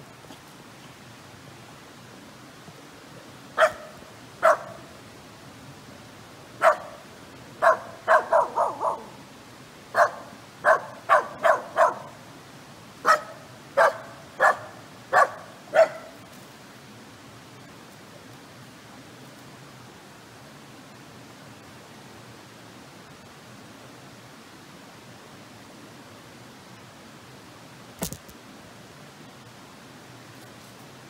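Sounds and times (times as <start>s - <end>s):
dog barking: 3.6s - 4.8s, 6.6s - 7.0s, 7.6s - 9.2s, 10.0s - 12.1s, 13.0s - 16.2s.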